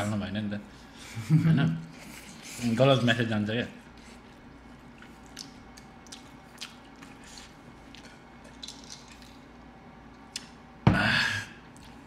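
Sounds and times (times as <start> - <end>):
faint steady hum: 0.0 - 12.0
chewing: 3.8 - 9.5.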